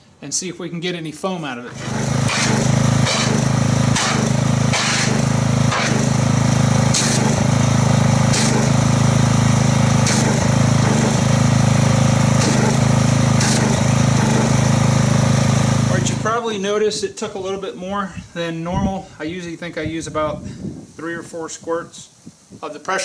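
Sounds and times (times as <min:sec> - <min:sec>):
pressure washer spraying: 0:01.8 - 0:16.3.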